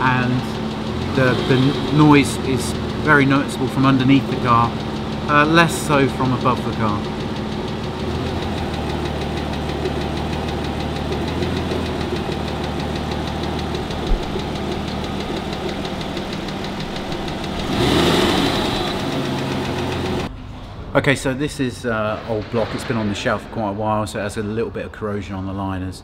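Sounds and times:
fast regular engine tick: 0.0s - 20.3s
car engine idling: 0.0s - 20.4s.

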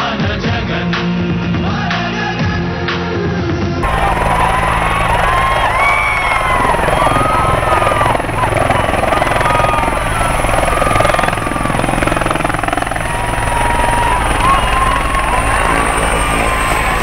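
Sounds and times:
helicopter rotor chopping: 3.8s - 17.0s
helicopter turbine running: 3.8s - 17.0s.

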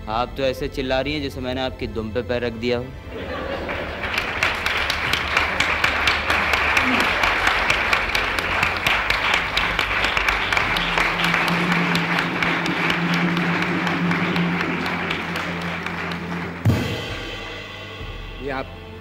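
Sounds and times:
audience applauding: 3.2s - 17.3s
held low note: 9.6s - 19.0s
drum kit beat with cymbals: 16.1s - 19.0s
loud hit: 16.5s - 19.0s.

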